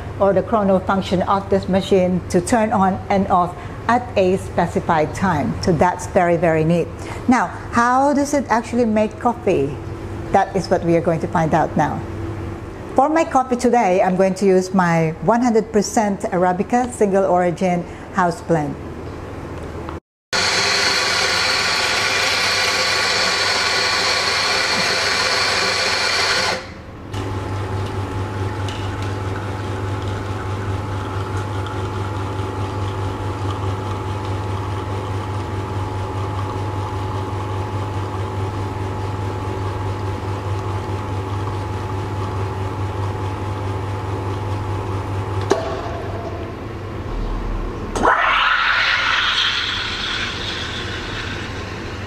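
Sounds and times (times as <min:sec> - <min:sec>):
coffee grinder running: 0:20.4 - 0:26.8, 0:28.7 - 0:38.3, 0:49.6 - 0:52.0
espresso machine pump humming: 0:20.4 - 0:45.4, 0:48.7 - 0:52.0.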